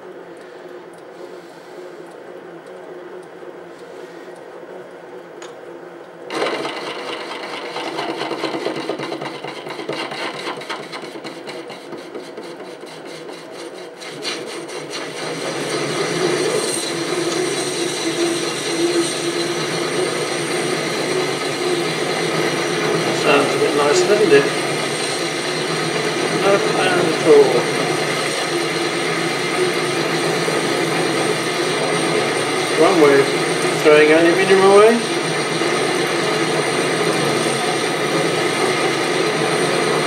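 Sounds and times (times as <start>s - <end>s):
tool scraping metal: 6.3s - 30.0s
lathe running: 6.3s - 40.0s.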